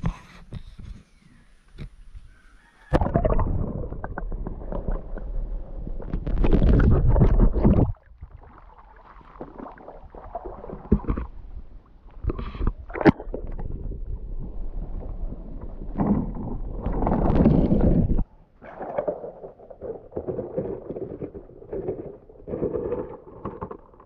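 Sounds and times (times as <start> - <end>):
muffled underwater sloshing: 2.3 - 24.0.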